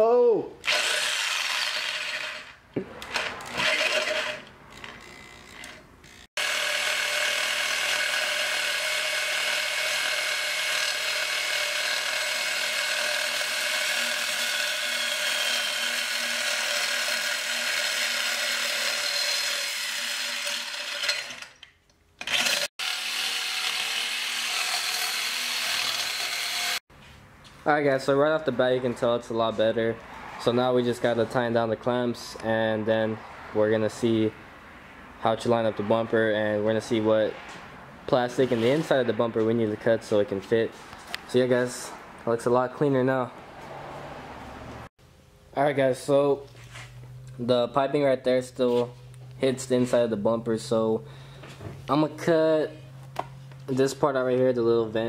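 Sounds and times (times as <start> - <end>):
reciprocating saw cutting metal pipe: 0.6 - 2.6, 3.5 - 21.6, 22.2 - 26.8.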